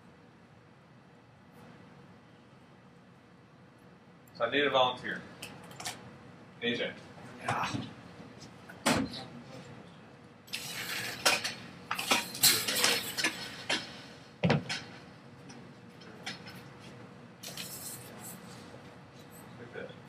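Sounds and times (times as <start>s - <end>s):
metal slinky jangling: 10.5s - 13.4s, 17.4s - 18.5s.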